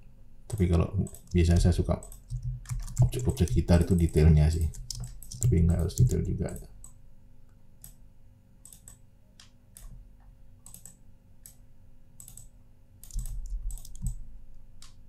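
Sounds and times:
computer mouse and keyboard clicks: 0:00.5 - 0:07.0, 0:08.6 - 0:10.0, 0:10.6 - 0:11.6, 0:12.2 - 0:14.2.

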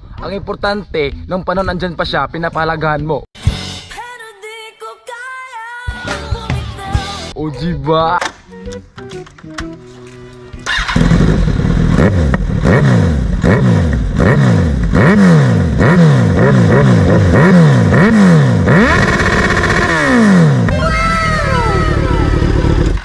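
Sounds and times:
motorcycle engine revving: 0:10.6 - 0:23.0.

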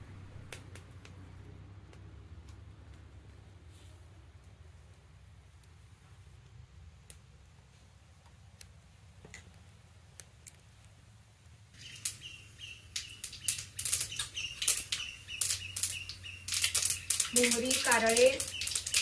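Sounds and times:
mustard seeds spluttering in oil: 0:11.8 - 0:19.0.

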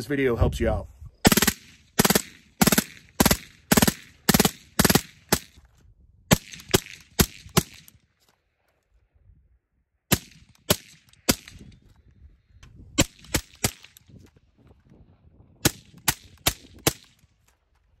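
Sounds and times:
suppressed rifle shots: 0:01.2 - 0:05.6.

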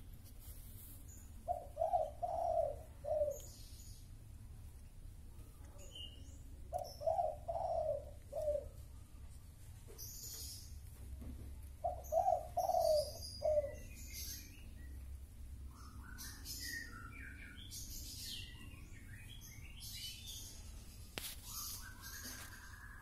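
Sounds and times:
birds chirping: 0:00.9 - 0:23.0
loud bird calls: 0:01.1 - 0:04.1, 0:05.8 - 0:09.2, 0:11.8 - 0:15.0, 0:15.6 - 0:23.0.

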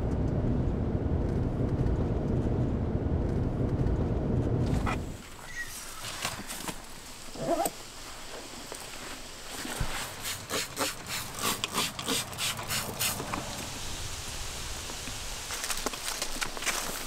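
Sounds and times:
spray bottle hissing sprays: 0:10.2 - 0:13.3.

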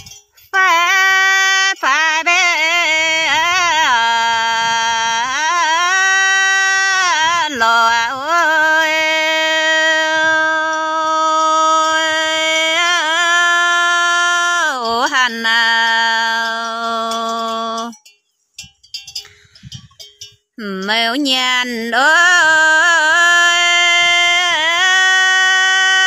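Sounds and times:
woman singing folk song: 0:00.0 - 0:18.0, 0:20.6 - 0:26.0.

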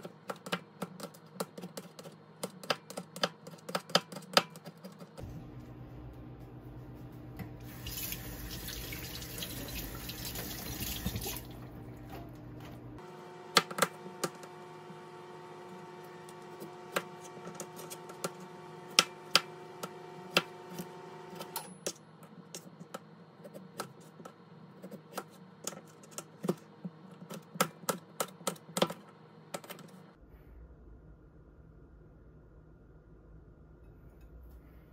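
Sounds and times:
knife chopping on plastic board: 0:00.0 - 0:05.2, 0:13.5 - 0:14.5.

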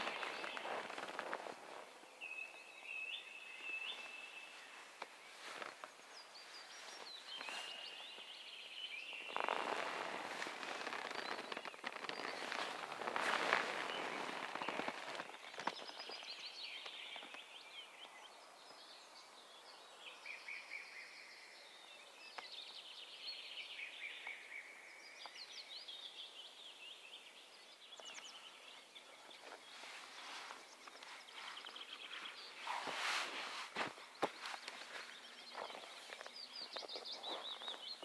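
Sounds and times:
crackling rustle: 0:00.0 - 0:17.6, 0:29.2 - 0:38.0
birds chirping and trilling: 0:00.0 - 0:38.0.

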